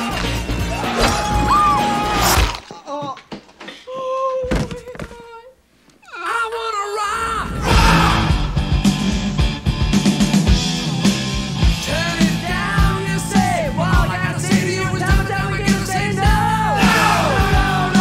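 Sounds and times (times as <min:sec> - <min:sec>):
rock music with drum beat: 0:07.7 - 0:18.0
person singing: 0:11.8 - 0:18.0.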